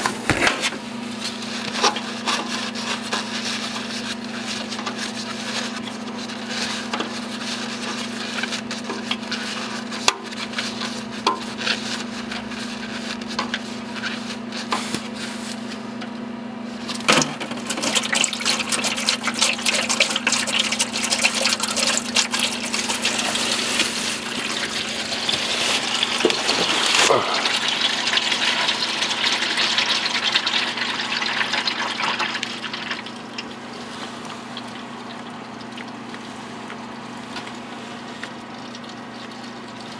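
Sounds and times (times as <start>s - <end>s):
oil splashing into drain pan: 16.9s - 33.6s.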